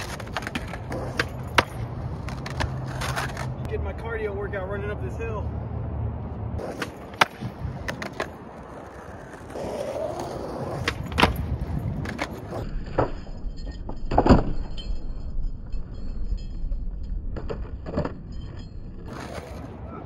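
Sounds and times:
skateboard clacking on pavement: 0.0 - 3.6, 6.6 - 13.2
skateboard wheels rolling on concrete: 0.0 - 20.0.

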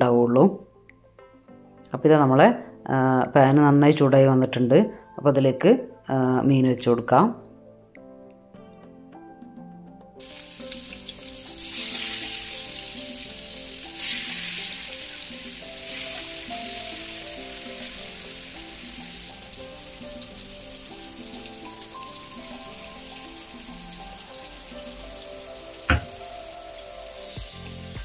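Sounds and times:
soft background music: 0.0 - 28.0
fish sizzling in hot oil: 10.2 - 28.0.

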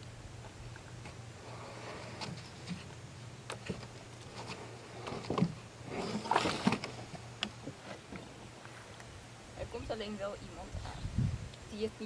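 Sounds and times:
canoe knocking and scraping: 1.0 - 2.9, 3.5 - 8.9.

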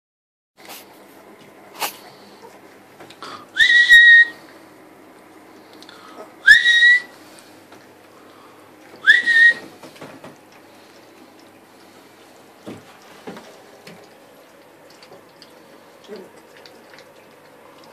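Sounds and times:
short high whistles: 3.6 - 4.4, 6.5 - 7.1, 9.0 - 9.6.

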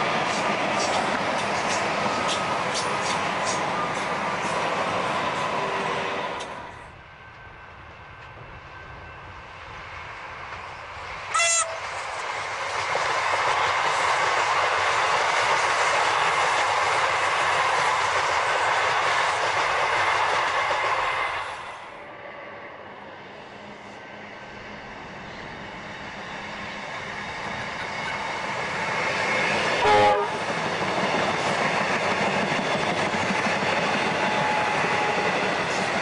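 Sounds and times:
electric train passing: 0.0 - 36.0
train horn blast: 11.3 - 11.9, 29.8 - 30.5.

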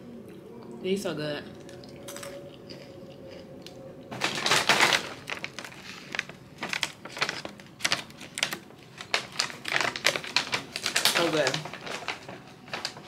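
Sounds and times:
plastic bag crinkling: 4.1 - 13.0.

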